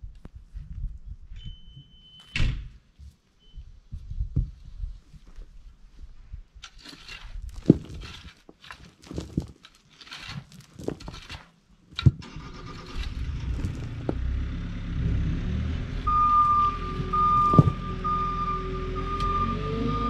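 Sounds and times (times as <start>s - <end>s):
shovel scraping soil: 6.6s - 14.2s.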